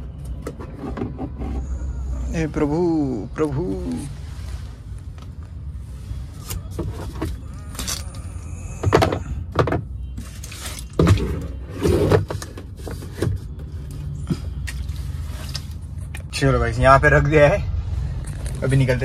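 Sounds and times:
low car hum: 0:00.0 - 0:19.0
plastic bottle knocks and crinkles: 0:08.8 - 0:13.5.

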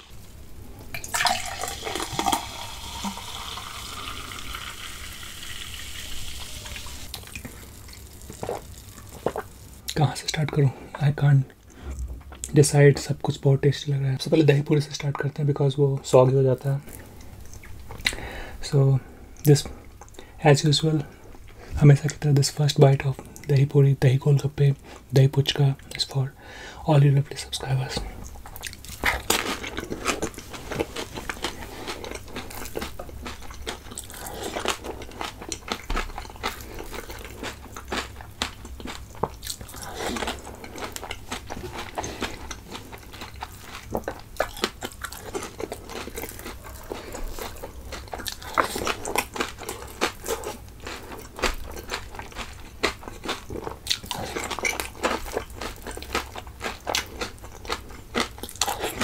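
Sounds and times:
crunchy food being chewed: 0:07.1 - 0:10.0, 0:28.2 - 0:59.0.

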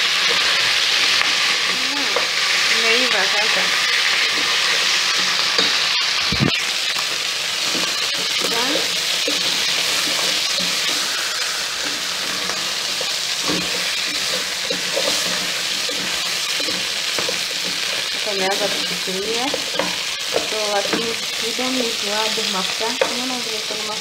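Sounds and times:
chicken sizzling in a pot: 0:00.0 - 0:24.0
wooden spoon scraping a pot: 0:07.5 - 0:23.3.

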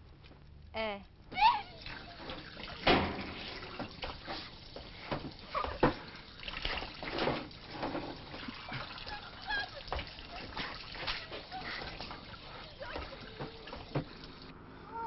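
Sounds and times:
water splashing and trickling: 0:01.4 - 0:14.5
knocks and clatter: 0:02.4 - 0:08.5.

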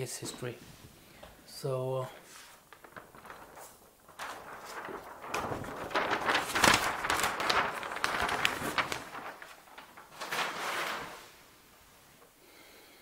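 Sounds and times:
paper sheets rustling: 0:02.2 - 0:12.3.

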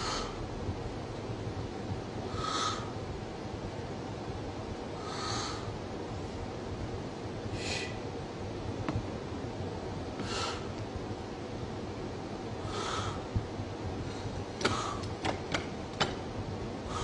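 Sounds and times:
man breathing hard: 0:00.0 - 0:00.5, 0:02.3 - 0:03.0, 0:05.0 - 0:05.8, 0:07.5 - 0:08.0, 0:10.2 - 0:10.8, 0:12.6 - 0:13.4, 0:14.0 - 0:15.2, 0:16.8 - 0:17.0.

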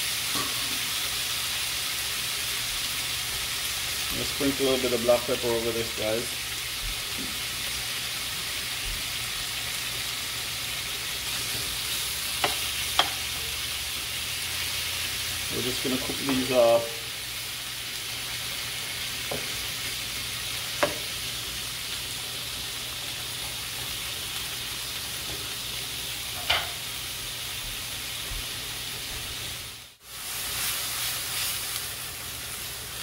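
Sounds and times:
shrimp sizzling in oil: 0:00.0 - 0:33.0
wooden spoon tapping a pan: 0:12.4 - 0:13.2, 0:20.8 - 0:21.1.

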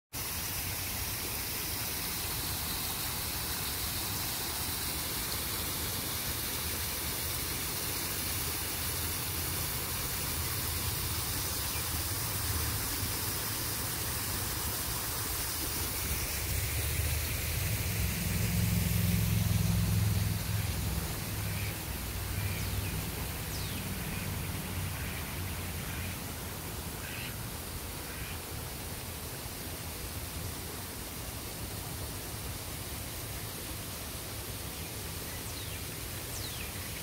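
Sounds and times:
waterfall rushing into pond: 0:00.1 - 0:37.0.

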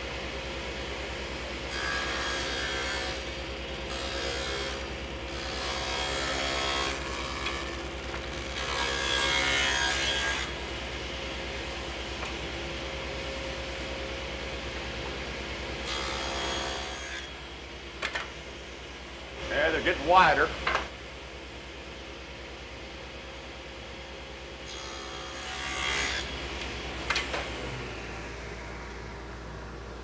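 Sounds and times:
saw cutting wood: 0:01.7 - 0:03.3, 0:03.9 - 0:10.7, 0:15.8 - 0:17.4, 0:19.4 - 0:20.5, 0:24.7 - 0:28.4
table saw running: 0:24.6 - 0:29.8.

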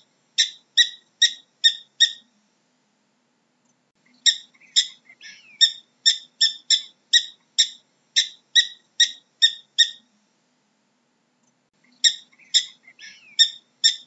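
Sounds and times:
prairie dog chirping barks: 0:00.4 - 0:02.2, 0:04.2 - 0:10.0, 0:12.0 - 0:14.0.

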